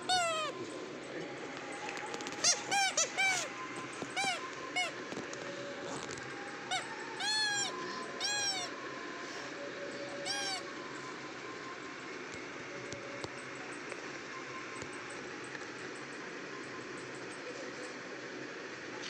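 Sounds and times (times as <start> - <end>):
rubber squeeze toy squeaking: 0.0 - 0.5, 2.2 - 5.0, 6.7 - 8.7, 10.2 - 10.6.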